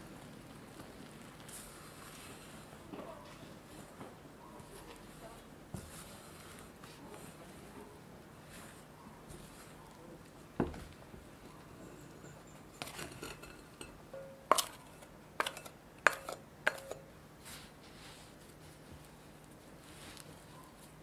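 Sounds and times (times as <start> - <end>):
glass bowl clinking: 11.9 - 14.8, 15.4 - 17.1.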